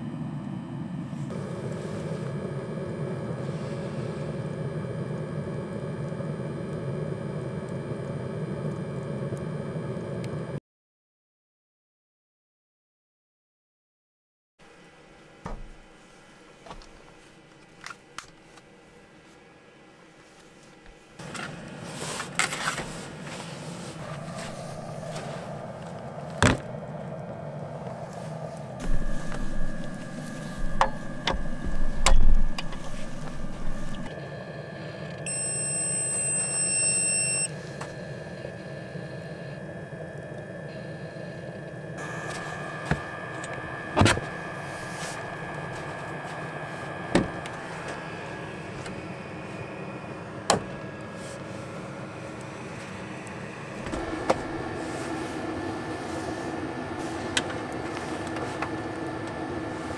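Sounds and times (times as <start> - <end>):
heater fan hum: 0.0 - 10.6, 14.6 - 59.9
high electronic beep: 35.3 - 37.5.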